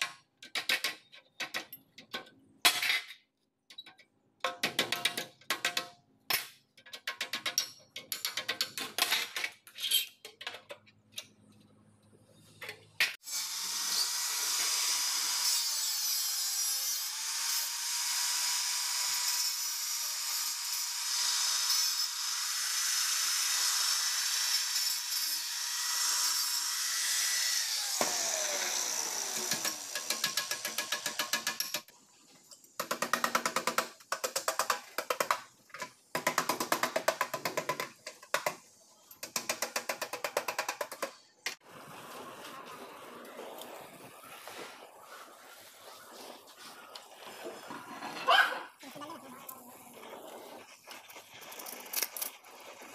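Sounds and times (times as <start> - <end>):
angle grinder whining: 26.0 - 30.3.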